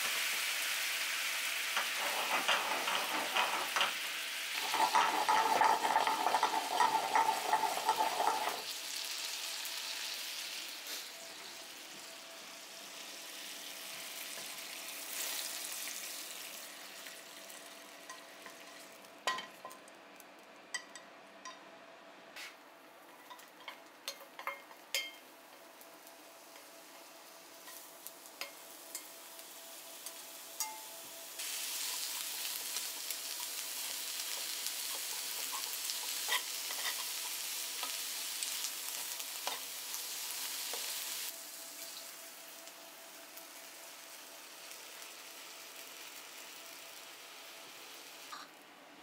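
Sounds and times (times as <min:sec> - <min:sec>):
onions sizzling in pan: 0:00.0 - 0:19.7, 0:22.4 - 0:48.6
utensils clinking on pan: 0:01.8 - 0:08.7, 0:18.0 - 0:19.8, 0:23.2 - 0:25.6, 0:30.0 - 0:31.0, 0:31.8 - 0:41.0.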